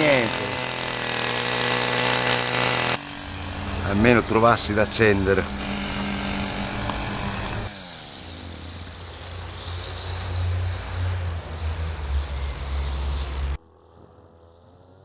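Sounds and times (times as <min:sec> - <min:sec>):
two-stroke brush cutter engine: 0:00.0 - 0:13.6.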